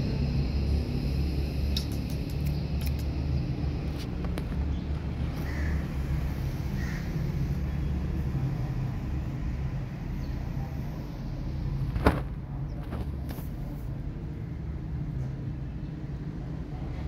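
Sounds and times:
low engine-like rumble: 0.0 - 17.0
sharp click: 1.7 - 3.2.

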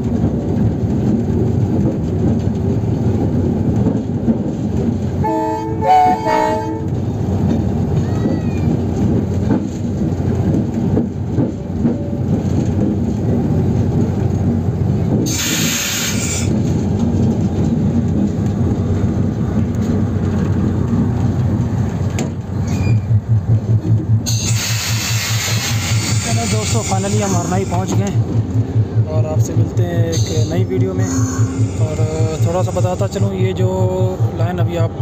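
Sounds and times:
diesel locomotive rumbling: 0.0 - 35.0
train wheels on rails: 0.0 - 35.0
multi-tone train horn blast: 5.2 - 7.0
hissing air burst: 15.3 - 16.5.

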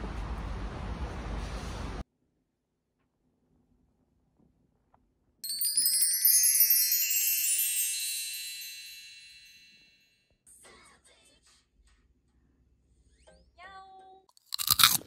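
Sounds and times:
shimmering bell-like chime: 5.4 - 10.1.

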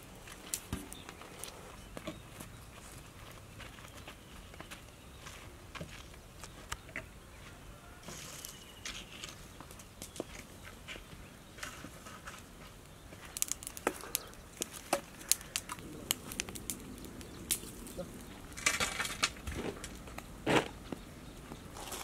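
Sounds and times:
fire popping: 0.0 - 1.6, 11.7 - 22.0
wood fire crackling: 0.0 - 1.8, 8.1 - 22.0.

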